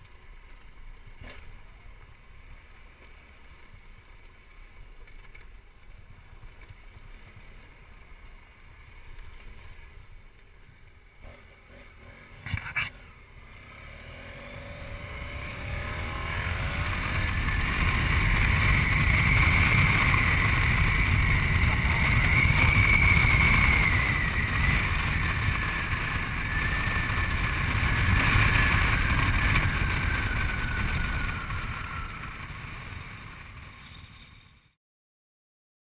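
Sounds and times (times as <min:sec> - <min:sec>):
motorcycle whine: 0:00.0 - 0:34.8
wind rushing over microphone: 0:14.4 - 0:33.8.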